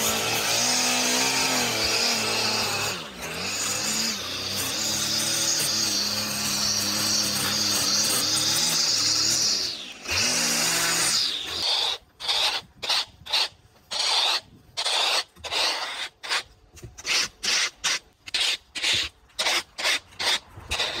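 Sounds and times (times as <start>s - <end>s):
string trimmer motor running: 0.0s - 11.7s
plastic rake scraping concrete: 11.5s - 21.0s.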